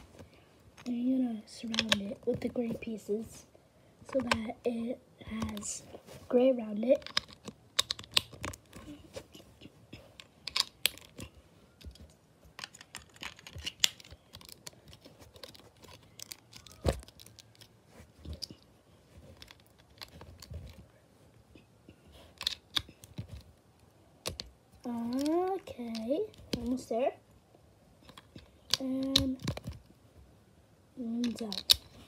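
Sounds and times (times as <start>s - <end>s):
plastic bricks clicking: 1.6s - 2.0s, 7.0s - 8.9s, 10.2s - 18.7s, 22.3s - 23.4s, 24.2s - 26.8s, 28.0s - 29.8s, 31.2s - 32.0s.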